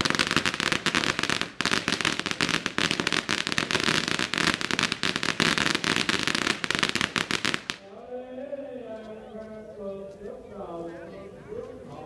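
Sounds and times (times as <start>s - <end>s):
firecrackers banging: 0.0s - 8.0s.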